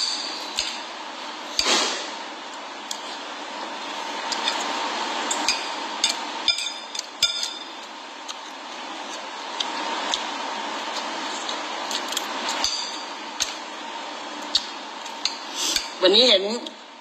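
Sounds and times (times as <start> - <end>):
cutlery clinking on a plate: 5.4 - 7.7.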